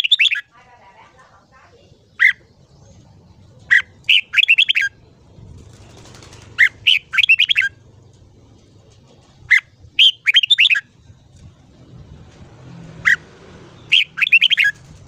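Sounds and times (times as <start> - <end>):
bird singing: 0.0 - 0.6, 1.2 - 8.0, 9.4 - 11.3, 13.0 - 15.0.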